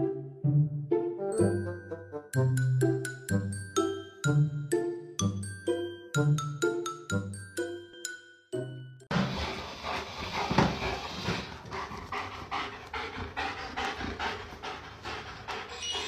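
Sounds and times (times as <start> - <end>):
dog panting: 9.1 - 16.0.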